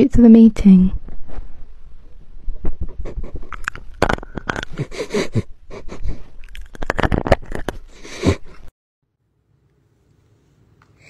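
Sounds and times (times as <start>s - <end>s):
scrapes on microphone: 0.9s - 5.2s.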